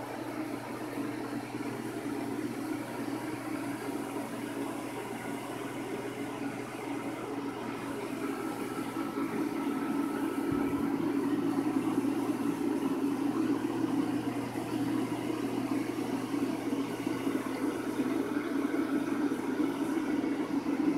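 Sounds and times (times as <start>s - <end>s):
low mechanical hum: 0.0s - 20.9s.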